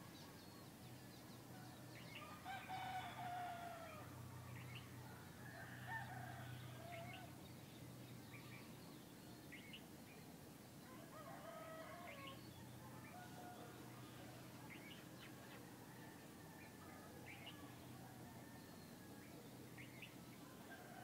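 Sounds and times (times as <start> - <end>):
faint rooster crowing: 1.5 - 7.4, 10.8 - 21.0.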